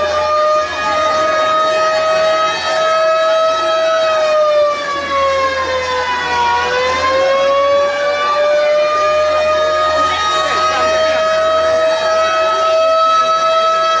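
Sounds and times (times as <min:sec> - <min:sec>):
ship's horn long blast: 0:07.1 - 0:14.0.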